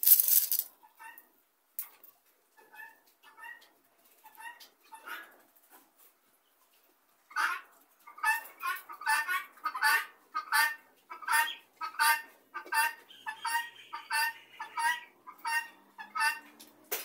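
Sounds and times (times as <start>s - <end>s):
guinea fowl rasping calls: 7.4s - 16.5s.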